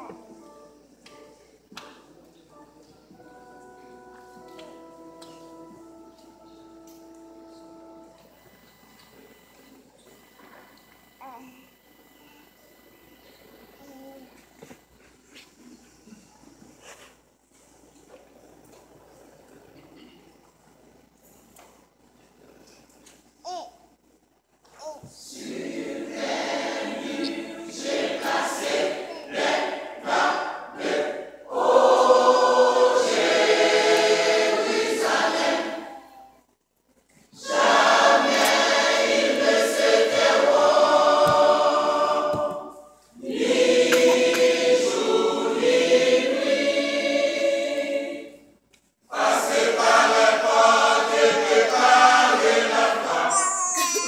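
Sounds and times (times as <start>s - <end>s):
church choir singing: 0.0s - 9.4s, 25.2s - 36.4s, 37.3s - 54.0s.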